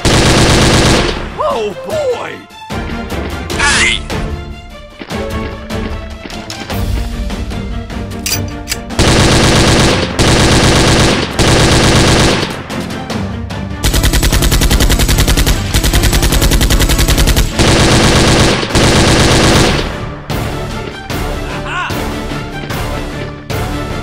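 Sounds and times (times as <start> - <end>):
automatic gunfire bursts: 0.0 - 1.2, 9.0 - 12.6, 13.8 - 20.0
background music: 0.0 - 24.0.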